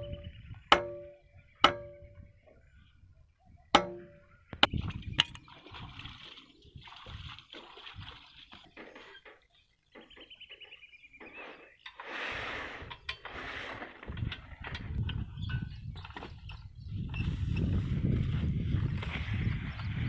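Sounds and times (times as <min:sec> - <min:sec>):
water and mud sloshing: 0:03.8 - 0:10.2, 0:11.2 - 0:20.0.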